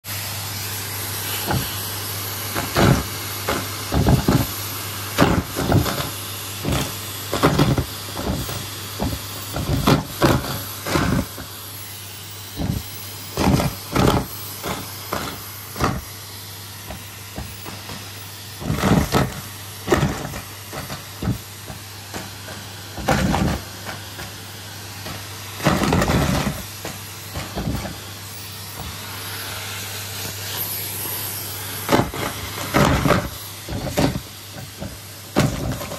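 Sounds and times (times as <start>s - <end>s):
vacuum cleaner running: 0.0s - 35.9s
knocks and rubs against nozzle: 2.5s - 4.6s, 5.2s - 11.5s, 12.5s - 16.1s, 16.9s - 29.1s, 31.8s - 35.9s.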